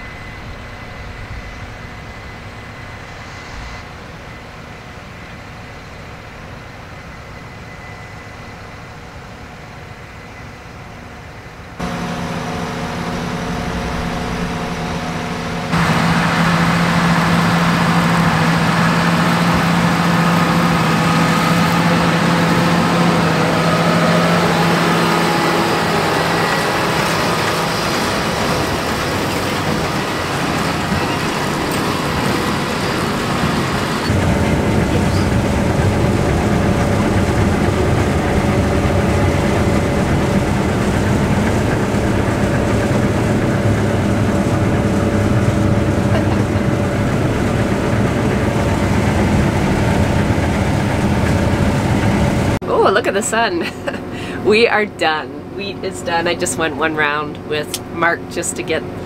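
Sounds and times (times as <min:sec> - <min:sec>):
combine harvester drone: 0:00.0 - 0:59.0
tractor working a baler: 0:11.8 - 0:59.0.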